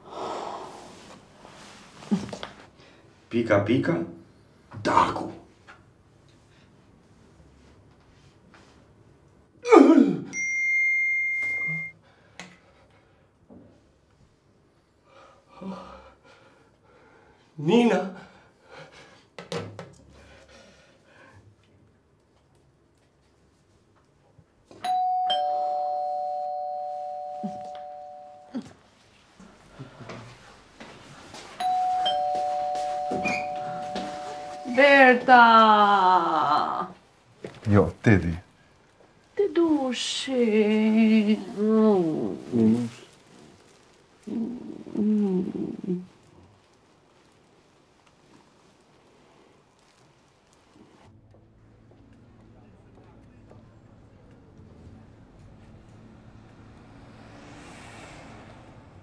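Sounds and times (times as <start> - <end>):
two-tone doorbell chime: 10.3 - 11.9, 24.8 - 28.6, 31.6 - 34.8
high electronic beep: 10.4 - 12.0
falling whoosh: 55.0 - 59.0.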